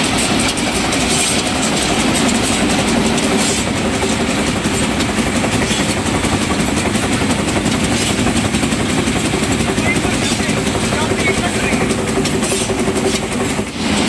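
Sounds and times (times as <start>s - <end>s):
factory machine running: 0.0s - 14.0s
wooden splints rattling in trays: 0.0s - 14.0s.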